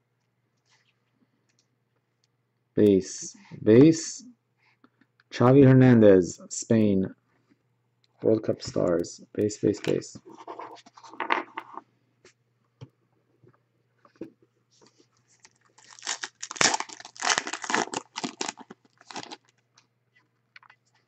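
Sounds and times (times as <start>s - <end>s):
foil wrapper tearing and crinkling: 15.4s - 19.6s.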